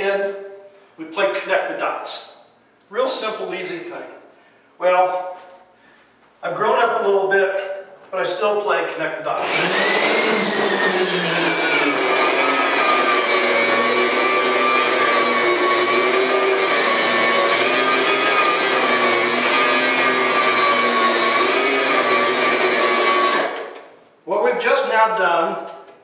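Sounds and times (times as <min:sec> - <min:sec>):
carpet machine motor whine: 0:09.4 - 0:23.6.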